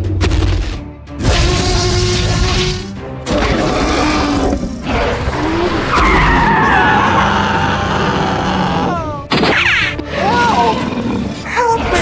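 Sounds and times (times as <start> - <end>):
dinosaur roar: 1.8 - 9.3
tyres skidding: 5.1 - 7.3.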